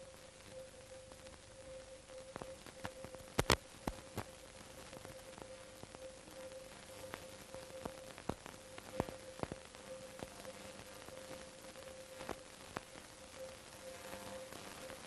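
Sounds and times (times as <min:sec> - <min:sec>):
film surface hiss: 0:00.0 - 0:15.0
thin steady tone: 0:00.0 - 0:15.0
clicks and pops: 0:02.3 - 0:04.3.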